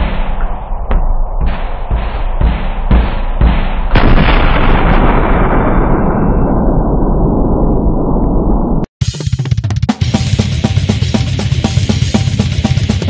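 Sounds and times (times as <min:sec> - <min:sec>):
heavy metal drum kit: 0:00.0 - 0:05.0, 0:09.0 - 0:13.0
explosion blast: 0:03.7 - 0:08.9.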